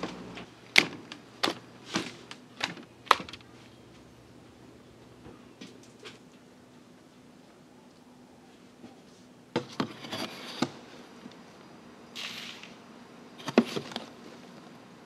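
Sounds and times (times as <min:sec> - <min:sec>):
powder pouring hiss: 0:12.1 - 0:12.9.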